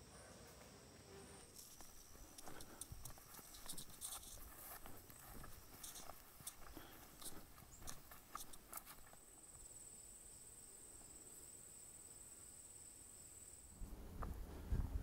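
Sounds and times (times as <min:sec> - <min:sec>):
insect trilling: 0:01.5 - 0:10.2.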